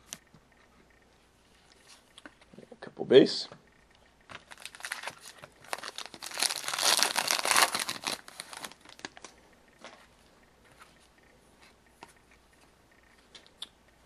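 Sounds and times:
wrapper tearing and crinkling: 0:04.4 - 0:09.3.

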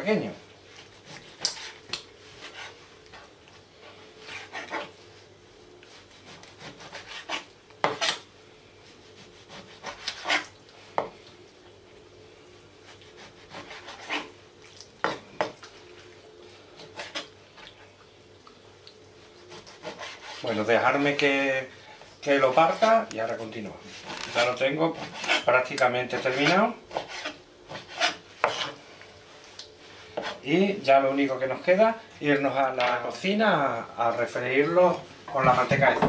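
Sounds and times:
knife chopping on cutting board: 0:26.2 - 0:28.8.

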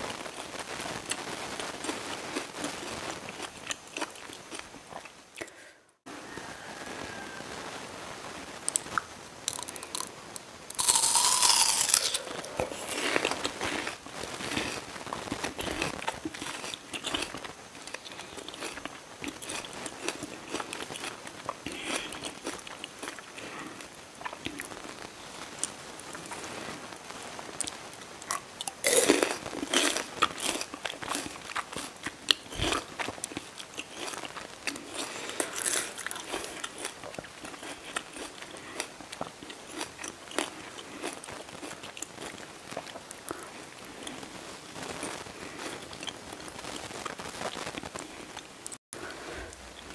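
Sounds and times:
chewing: 0:00.4 - 0:05.6, 0:08.7 - 0:10.1, 0:10.7 - 0:24.8, 0:27.6 - 0:47.2
loud crunch of biting fruit: 0:09.5 - 0:10.1, 0:10.7 - 0:24.7, 0:28.3 - 0:43.4.

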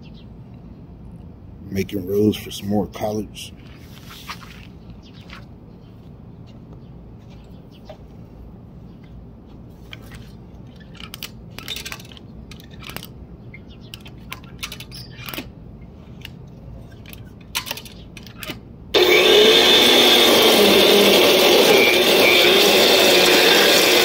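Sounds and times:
electric tiller motor whirring: 0:17.7 - 0:24.0.

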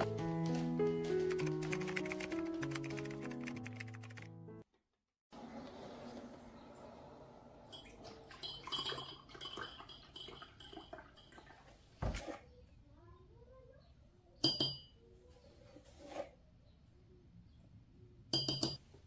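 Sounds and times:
spoon clinking against cups: 0:07.8 - 0:11.4, 0:14.4 - 0:15.0, 0:18.3 - 0:18.8
milk pouring into mug: 0:07.8 - 0:11.8.

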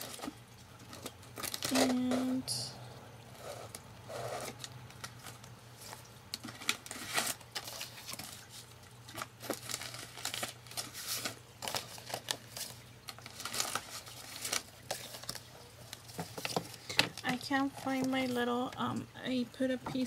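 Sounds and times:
papers and plastic rustling: 0:00.0 - 0:02.6, 0:03.3 - 0:19.1
low steady hum: 0:00.0 - 0:20.0.

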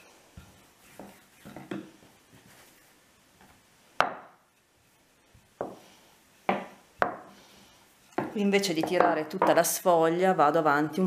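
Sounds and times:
rolling pin on wooden board: 0:00.4 - 0:02.6, 0:06.4 - 0:07.3, 0:08.1 - 0:09.6.

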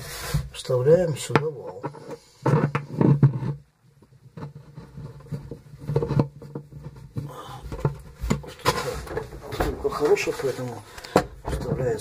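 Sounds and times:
rubbing and knocking handling noises: 0:00.0 - 0:12.0.

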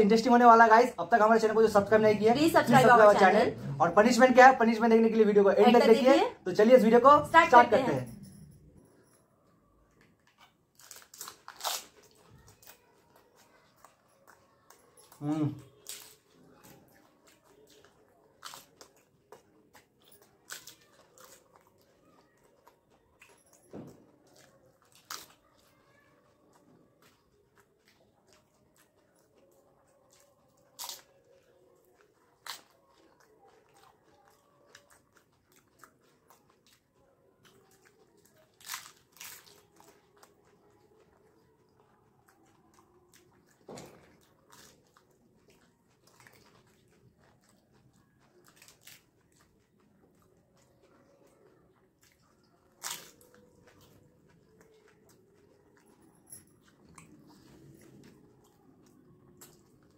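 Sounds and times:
soft wet chewing: 0:00.0 - 0:59.9
crisp shells cracking when bitten: 0:10.7 - 0:12.8, 0:30.6 - 0:33.3, 0:37.6 - 0:40.6, 0:52.1 - 0:55.4.

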